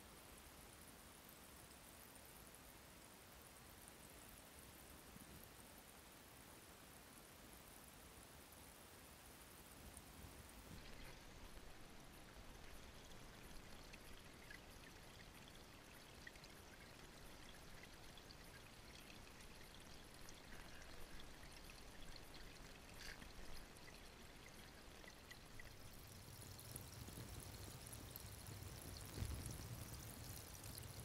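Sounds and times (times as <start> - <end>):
water flowing through sluice: 10.1 - 31.0.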